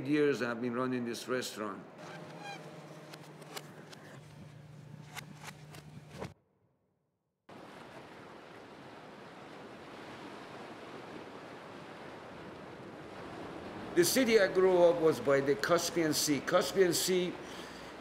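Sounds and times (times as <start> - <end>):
low hum: 1.8 - 6.3
surf breaking on a beach: 7.5 - 16.4.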